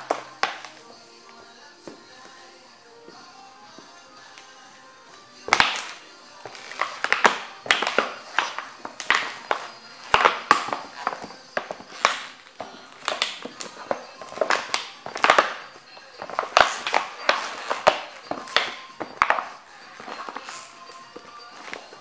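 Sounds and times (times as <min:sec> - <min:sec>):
boots crunching on painted board: 0:00.0 - 0:04.6, 0:05.2 - 0:22.0.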